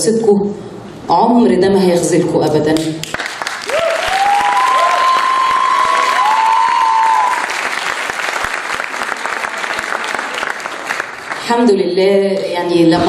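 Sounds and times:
audience applauding: 0:03.0 - 0:11.5
cheering cries: 0:03.7 - 0:08.0.

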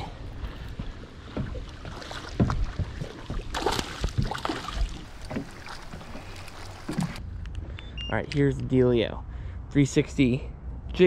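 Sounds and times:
sharp splashes and knocks: 0:00.0 - 0:07.2
water splashing against boat: 0:00.0 - 0:07.2.

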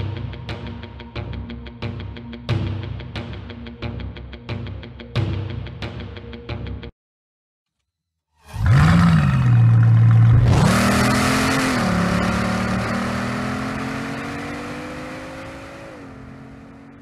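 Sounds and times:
car engine revving and accelerating: 0:08.6 - 0:17.0.

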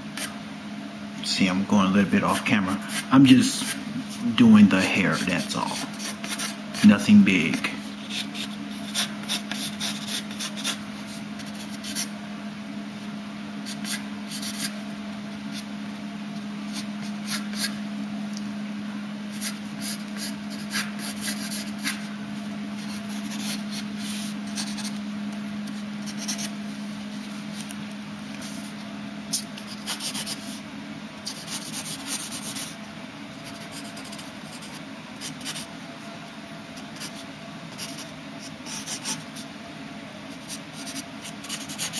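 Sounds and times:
low steady hum: 0:00.0 - 0:41.9
pencil scratching on paper: 0:02.2 - 0:04.3, 0:05.0 - 0:12.1, 0:13.6 - 0:14.8, 0:19.3 - 0:22.0, 0:22.8 - 0:25.0, 0:25.6 - 0:26.5, 0:29.3 - 0:30.5, 0:31.2 - 0:32.8, 0:33.4 - 0:35.7, 0:36.8 - 0:39.4, 0:40.3 - 0:41.9.

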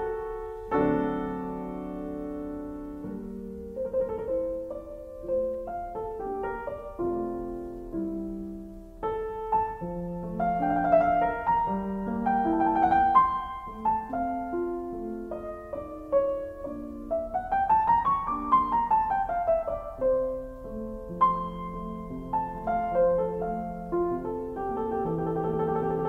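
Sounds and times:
gentle solo piano music: 0:00.0 - 0:26.0.

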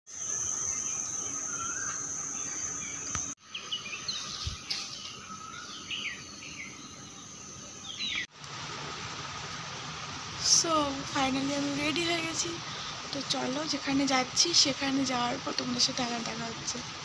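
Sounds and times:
high-pitched insect drone: 0:00.1 - 0:03.3
birds chirping: 0:00.1 - 0:08.3.

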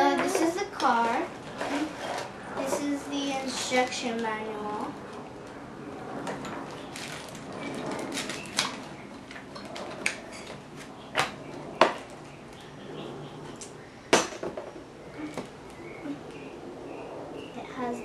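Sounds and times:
plastic bags crinkling: 0:06.6 - 0:10.5.

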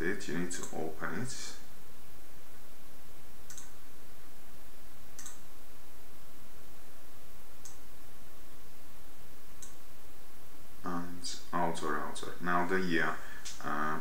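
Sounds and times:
steady background hiss: 0:00.0 - 0:14.0
computer mouse clicks: 0:03.5 - 0:03.8, 0:05.2 - 0:05.4, 0:09.6 - 0:09.8.

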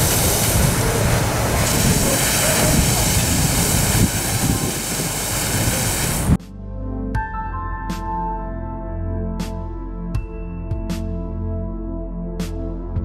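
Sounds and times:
model steam locomotive running: 0:00.0 - 0:06.4
steam hissing: 0:00.0 - 0:06.4.

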